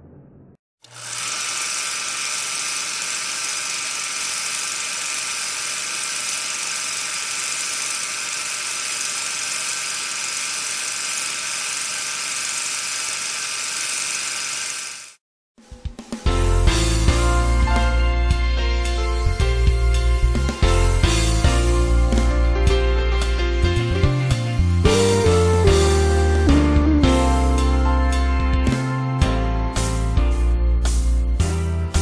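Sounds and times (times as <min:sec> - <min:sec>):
mist cannon fan hissing: 0:01.0 - 0:15.2.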